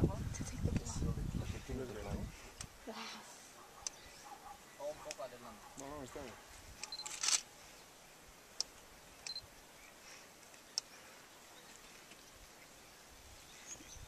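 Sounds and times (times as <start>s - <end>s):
camera shutter clicking: 6.8s - 7.5s.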